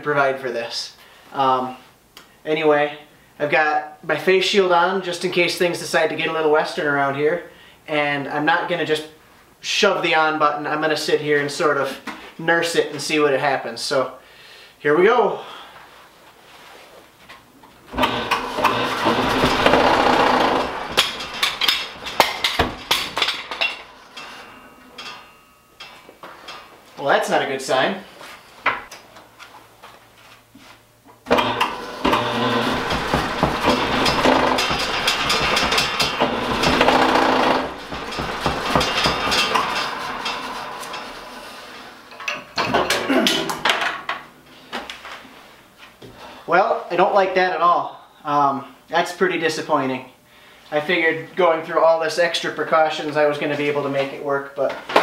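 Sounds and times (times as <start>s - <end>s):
wood lathe shaking and rattling: 17.9s - 25.2s, 31.3s - 42.0s
separate knocks: 32.1s - 40.5s.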